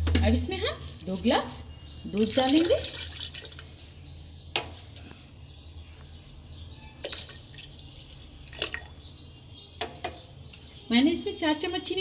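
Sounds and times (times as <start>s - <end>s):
milk pouring into metal jar: 2.2s - 3.9s, 7.0s - 9.0s.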